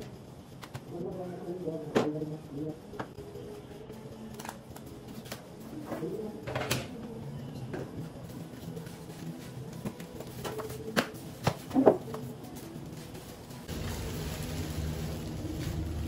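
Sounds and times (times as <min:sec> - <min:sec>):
plastic and foam rustling: 0:07.9 - 0:16.0.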